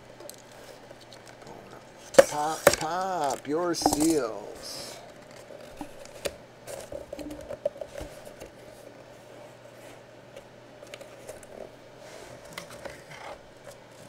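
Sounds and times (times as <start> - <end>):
faint steady hum: 0.0 - 14.0
cardboard rubbing and tapping: 2.0 - 2.9.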